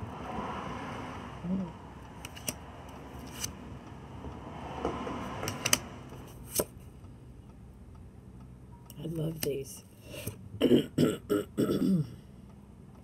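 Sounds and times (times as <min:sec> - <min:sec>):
low hum: 0:00.0 - 0:09.2
cards being shuffled: 0:02.2 - 0:02.6, 0:03.2 - 0:03.5, 0:05.5 - 0:06.7.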